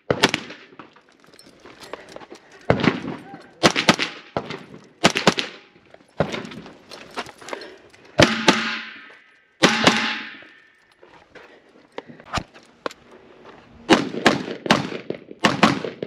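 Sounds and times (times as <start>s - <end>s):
gunshots: 0.0s - 0.8s, 2.7s - 6.5s, 8.2s - 10.5s, 13.9s - 16.0s.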